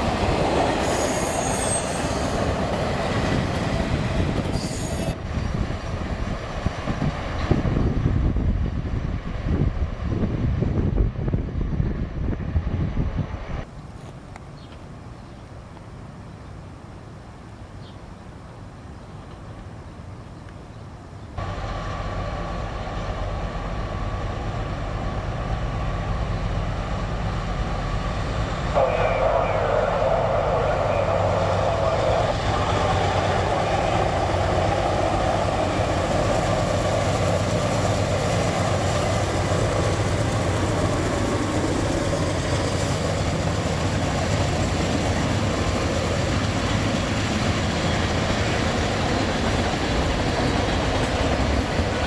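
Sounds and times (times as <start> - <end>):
diesel train engines humming: 0.0 - 13.7, 20.9 - 52.0.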